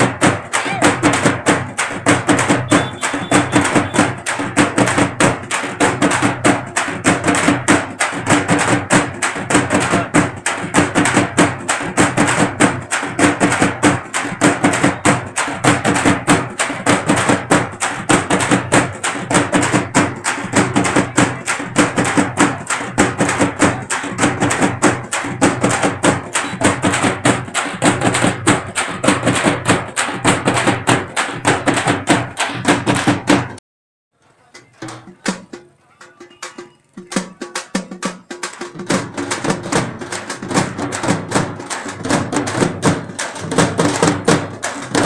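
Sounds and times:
dance music with fast beat: 0.0 - 11.7.

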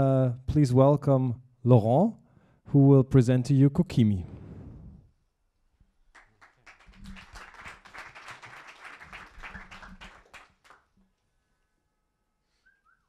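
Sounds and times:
audience applauding: 6.1 - 10.9.

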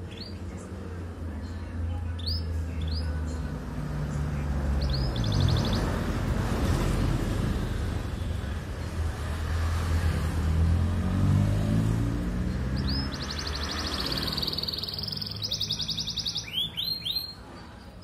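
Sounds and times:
canary chirping: 0.0 - 0.6, 2.0 - 3.6, 4.2 - 6.7, 11.6 - 18.0.

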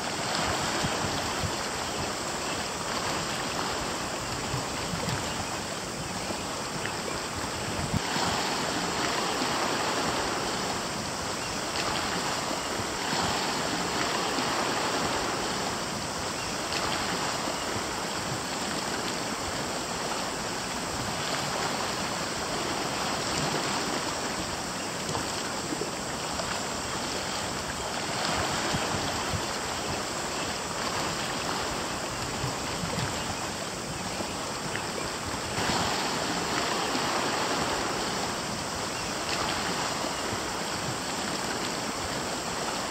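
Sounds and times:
small waves washing against rocks: 7.6 - 15.8, 34.9 - 42.9.

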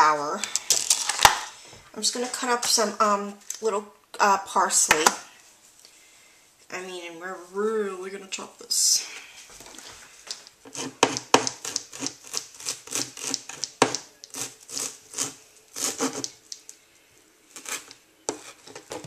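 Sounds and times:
knife chopping on plastic board: 10.7 - 16.4.

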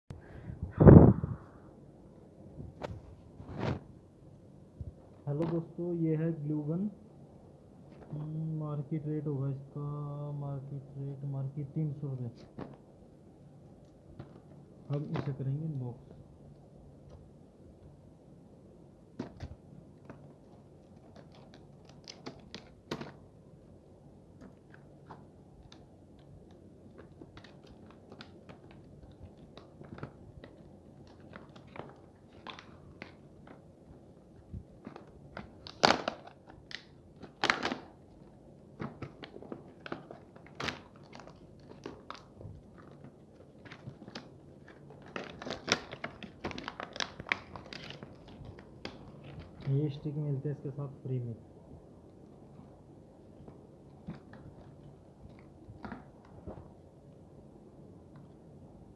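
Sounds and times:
stiff plastic crackling: 13.7 - 17.4, 19.1 - 50.4, 52.1 - 56.8
plastic snapping: 19.2 - 23.2, 34.8 - 49.7
plastic crinkling: 19.2 - 23.3, 24.3 - 50.1.

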